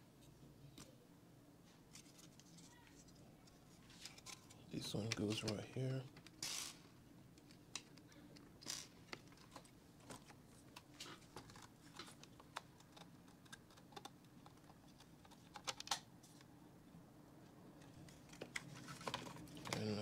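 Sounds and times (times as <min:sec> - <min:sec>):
plastic parts clicking: 0:10.8 - 0:16.1.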